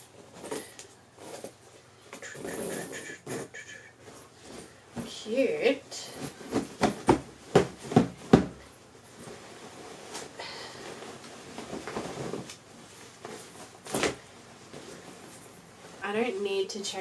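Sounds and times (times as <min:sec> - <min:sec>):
fabric rustling: 0:04.0 - 0:17.0
bag thump: 0:06.2 - 0:08.7.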